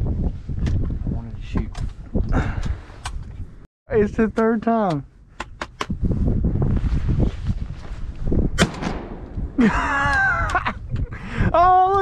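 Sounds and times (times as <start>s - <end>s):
wind buffeting microphone: 0.0s - 12.0s
shotgun shot: 8.6s - 9.5s
man calling out: 11.5s - 12.0s.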